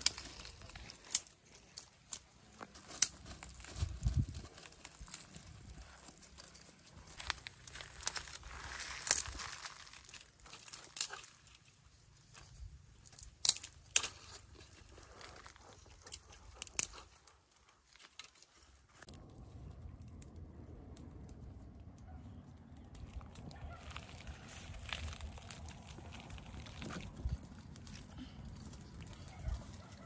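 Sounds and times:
dry twigs snapping: 0.0s - 21.4s, 22.5s - 30.0s
twig fire crackling: 0.0s - 30.0s
low rumble: 19.1s - 29.8s.

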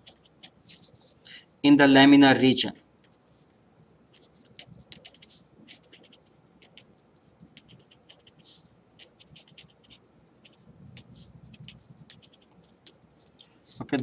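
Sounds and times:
marker pen scratching on paper: 0.0s - 1.2s, 4.1s - 14.0s.

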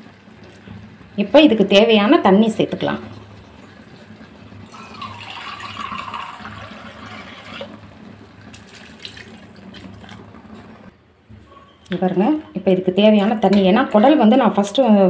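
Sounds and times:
water pouring into a pan: 3.1s - 10.4s.

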